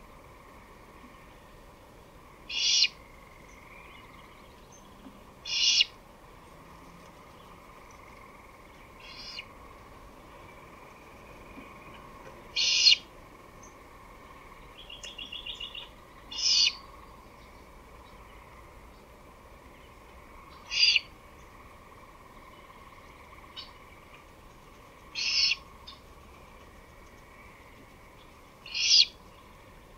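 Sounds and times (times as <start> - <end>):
owl hissing screeches: 2.5 - 3.0, 5.4 - 5.9, 9.0 - 9.4, 12.6 - 13.0, 16.3 - 16.8, 20.7 - 21.0, 25.2 - 25.6, 28.7 - 29.2.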